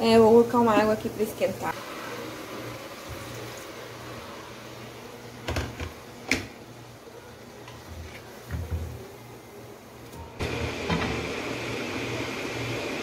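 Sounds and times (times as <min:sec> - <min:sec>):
water pouring: 0:01.7 - 0:04.9.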